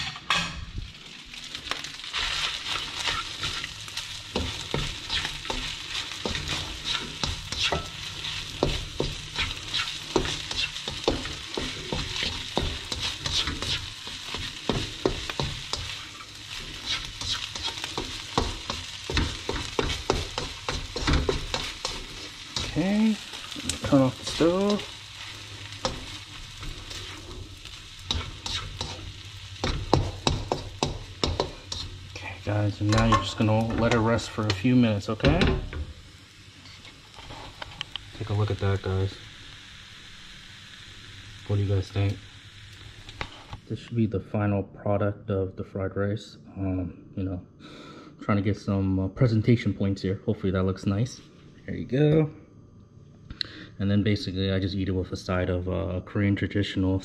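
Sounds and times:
rice sizzling in frying pan: 0.0s - 43.8s
spatula scraping pan: 2.1s - 34.6s.

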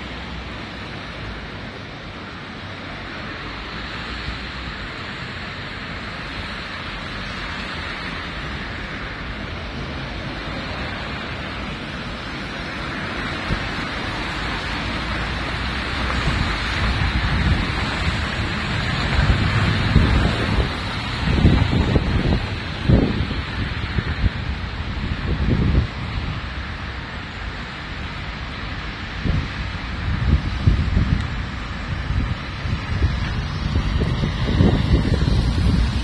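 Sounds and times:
car tyres on wet road: 0.0s - 36.0s
rain hissing: 0.0s - 36.0s
wind rumbling on microphone: 0.0s - 36.0s
van passing: 7.3s - 25.6s, 30.1s - 36.0s.

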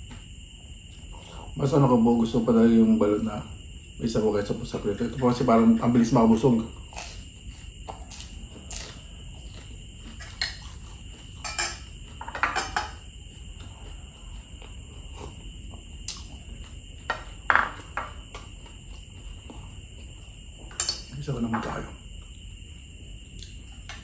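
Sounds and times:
person chewing: 6.8s - 12.2s, 13.1s - 20.6s
glass and dishes clinking: 11.4s - 13.0s.

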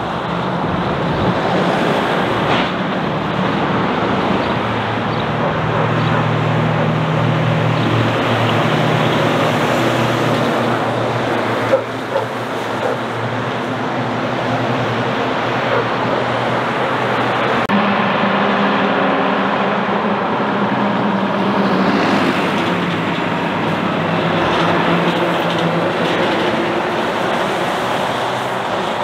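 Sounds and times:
diesel truck engine: 0.0s - 29.0s
tyre and road noise: 0.0s - 29.0s.

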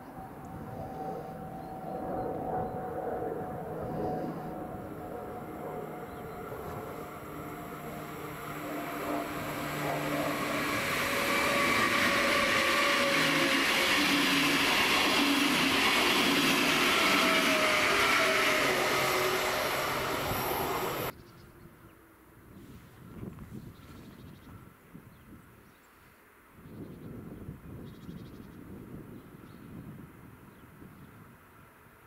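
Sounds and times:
electric train passing: 0.0s - 21.1s
whining tones of train: 0.0s - 21.1s.

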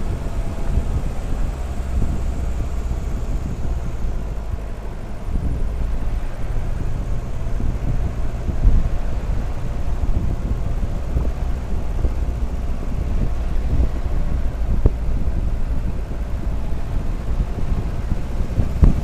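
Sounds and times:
car engine running under load: 0.0s - 19.0s.

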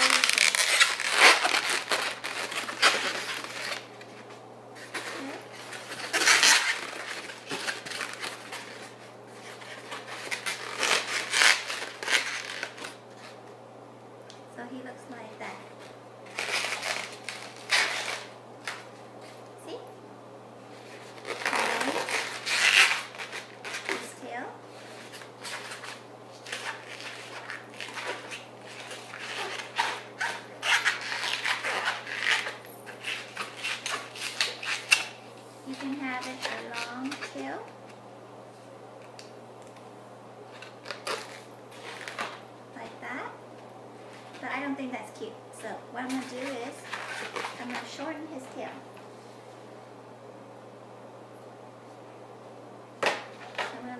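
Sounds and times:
rubber balloons rustling: 0.0s - 13.5s, 15.4s - 19.4s, 20.6s - 37.7s, 40.5s - 43.3s, 46.0s - 48.3s
low electrical hum: 0.0s - 53.9s.

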